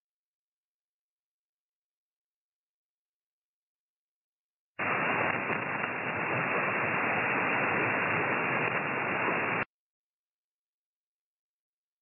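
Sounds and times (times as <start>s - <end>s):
radio receiver hiss and static: 4.8s - 9.7s.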